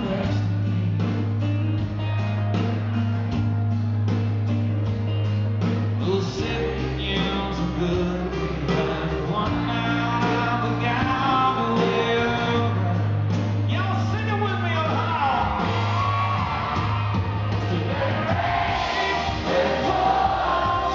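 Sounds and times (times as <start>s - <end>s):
man singing: 0.0s - 1.4s, 6.0s - 15.5s, 19.0s - 20.9s
country band playing: 0.0s - 20.9s.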